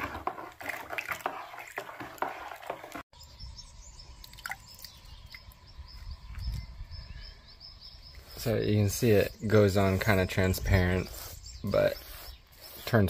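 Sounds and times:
liquid sloshing in metal bucket: 0.0s - 3.0s.

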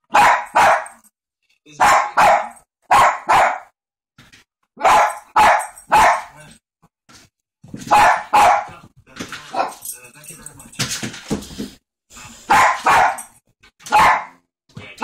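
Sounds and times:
small dog barking: 0.1s - 1.0s, 1.8s - 3.7s, 4.8s - 6.4s, 7.9s - 8.7s, 12.5s - 13.3s, 13.9s - 14.4s.

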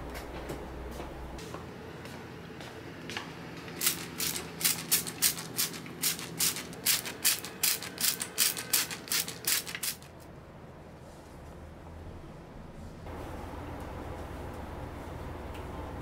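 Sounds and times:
spray bottle spritzing: 3.8s - 10.1s.

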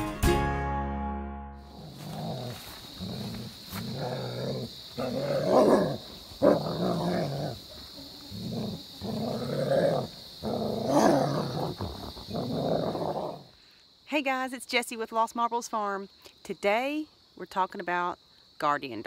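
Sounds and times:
dog growling: 1.7s - 13.5s.

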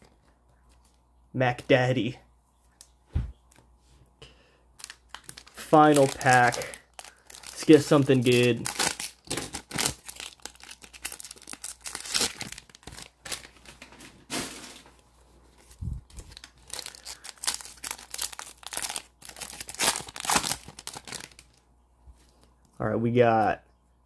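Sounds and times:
foil pack tearing open: 4.8s - 13.8s, 16.3s - 21.6s
foil wrapper crinkling: 4.8s - 14.9s, 15.6s - 21.6s.

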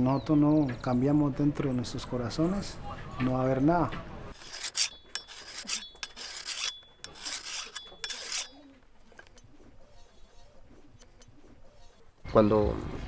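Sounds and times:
file rasping on metal blade: 4.4s - 12.2s.

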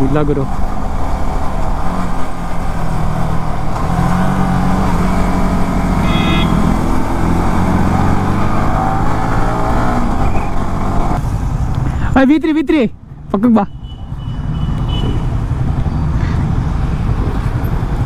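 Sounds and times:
motorcycle engine revving: 0.6s - 11.2s
wind rush on microphone: 14.9s - 18.0s.

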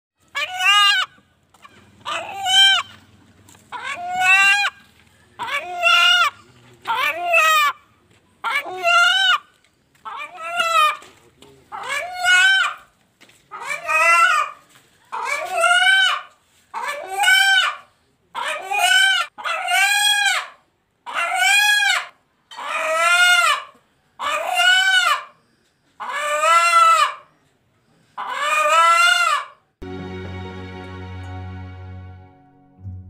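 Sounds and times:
rooster calling: 0.3s - 3.0s, 3.7s - 7.8s.

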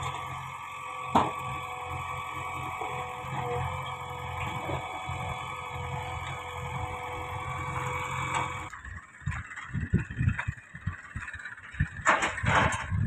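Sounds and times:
diesel engine running: 0.0s - 13.0s
wind buffeting microphone: 8.8s - 13.0s.

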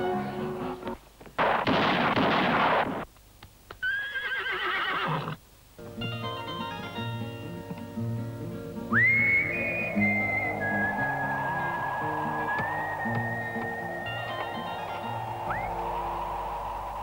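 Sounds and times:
music: 0.0s - 1.0s, 5.8s - 17.0s
horse whinnying: 3.8s - 5.4s.

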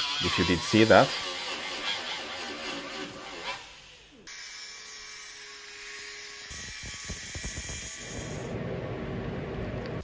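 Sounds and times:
angle grinder cutting steel: 0.0s - 8.5s
welder crackling: 6.5s - 8.5s.

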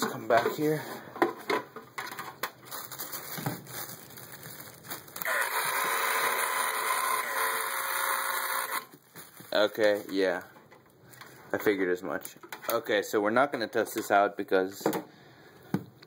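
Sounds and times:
small pump whirring: 5.2s - 8.9s.

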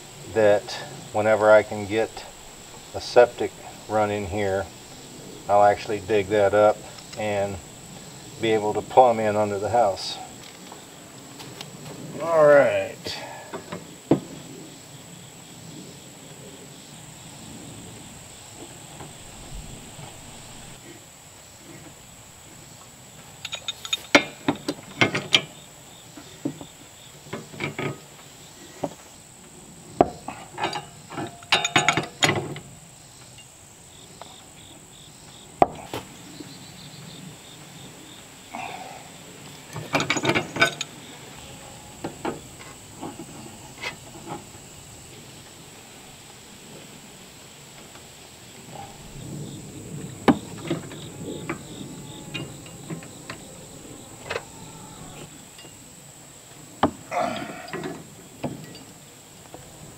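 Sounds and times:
high insect drone: 0.0s - 59.9s
metal pipe fittings clinking: 23.4s - 24.4s, 30.6s - 32.4s.

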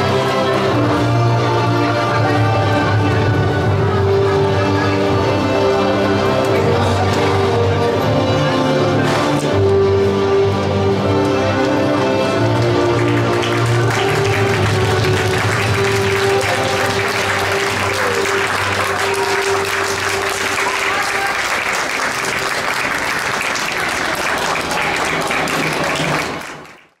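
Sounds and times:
background music: 0.0s - 26.8s
audience applauding: 12.3s - 27.0s.

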